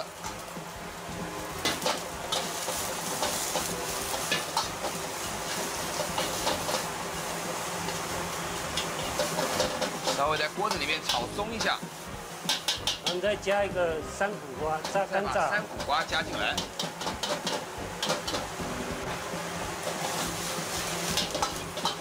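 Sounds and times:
food sizzling in a wok: 0.0s - 22.0s
spatula scraping a pan: 19.8s - 22.0s.

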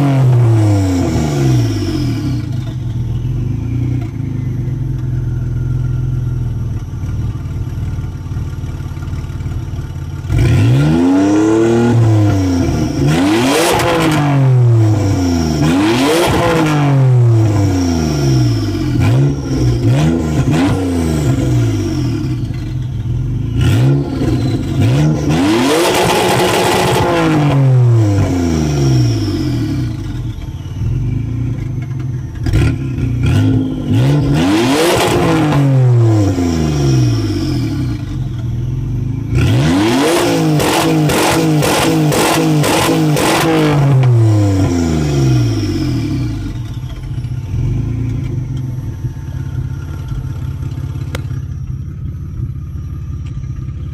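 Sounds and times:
car engine idling and revving: 0.0s - 53.9s
exhaust pops: 45.4s - 53.9s.

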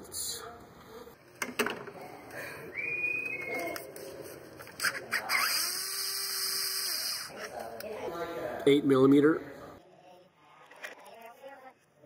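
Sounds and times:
cordless power tool whirring: 4.8s - 7.3s.

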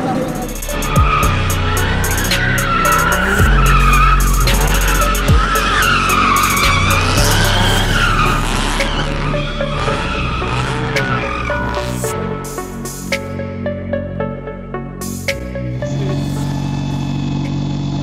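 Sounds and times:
tyres squealing: 0.0s - 12.8s
car engine under load: 0.0s - 13.3s, 15.7s - 18.0s.

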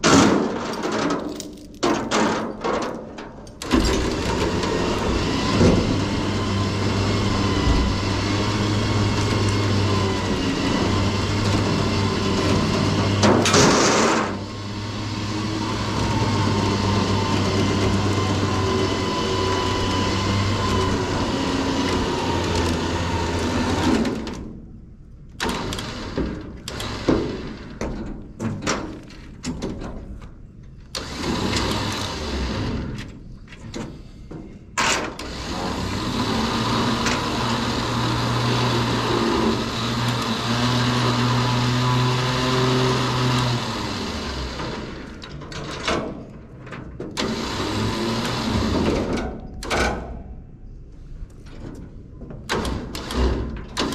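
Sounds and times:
electric winch running under load: 3.6s - 24.3s, 25.4s - 27.8s, 30.9s - 33.0s, 34.8s - 45.8s, 47.2s - 49.2s, 52.6s - 53.9s.

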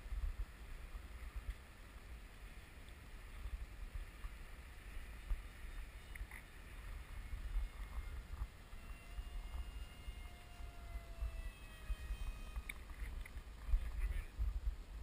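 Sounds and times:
faint electric motor whine: 0.0s - 15.0s
wind rumbling on microphone: 0.0s - 15.0s.

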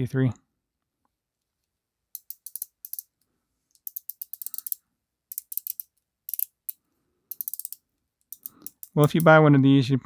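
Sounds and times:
watch bezel ratchet clicking: 2.2s - 3.1s, 3.8s - 9.3s.

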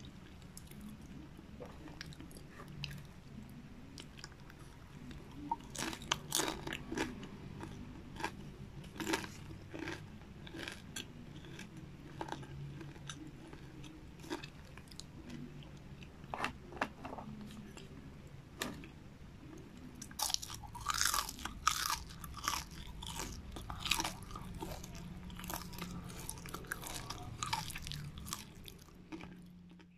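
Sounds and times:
low steady hum: 0.0s - 29.9s
crunching crispy snack: 5.5s - 15.5s, 20.0s - 29.9s.

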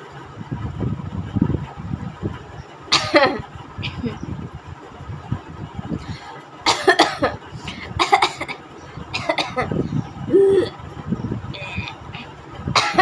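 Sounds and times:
woman coughing: 2.9s - 3.4s, 6.7s - 9.7s, 12.8s - 13.0s.

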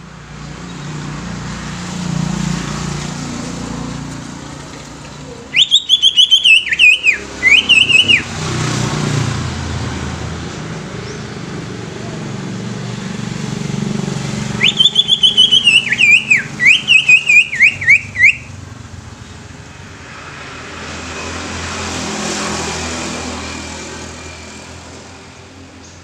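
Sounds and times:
traffic noise: 0.0s - 26.0s
bird singing whistled notes: 5.5s - 8.3s, 14.6s - 18.6s.

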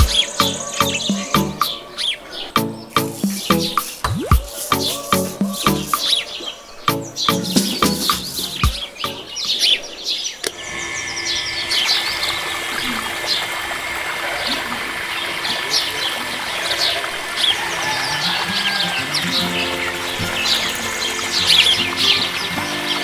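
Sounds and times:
birds chirping: 0.0s - 23.0s
water splashing into pond: 3.0s - 6.1s, 12.0s - 23.0s
faint motor hum: 10.6s - 16.6s.

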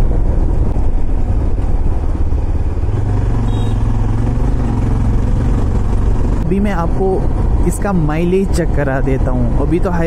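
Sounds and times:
motorcycle engine running: 0.8s - 7.6s.

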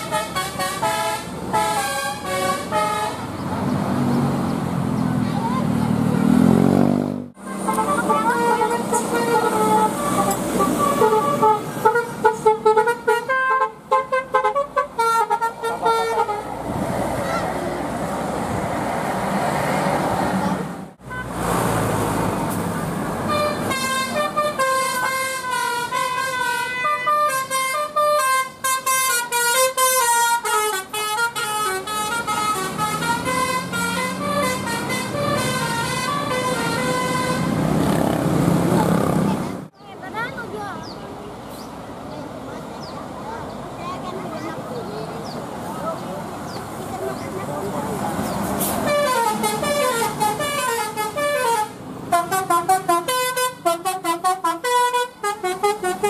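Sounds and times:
multi-tone air horn tune: 0.0s - 3.3s, 7.6s - 16.5s, 23.2s - 37.6s, 48.6s - 56.0s
bus engine: 0.0s - 56.0s
traffic noise: 0.0s - 56.0s.

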